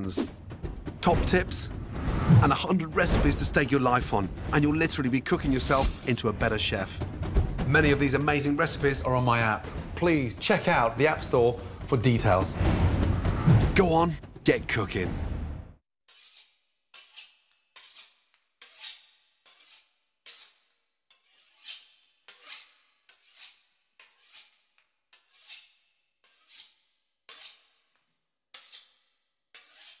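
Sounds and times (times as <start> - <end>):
knife sawing through pastry crust: 16.1 - 27.9, 28.5 - 30.0.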